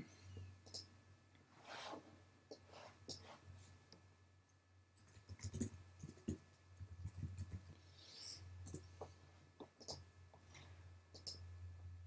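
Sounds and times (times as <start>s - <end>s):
low steady hum: 0.0s - 12.0s
keyboard typing: 5.0s - 6.4s, 7.0s - 7.8s.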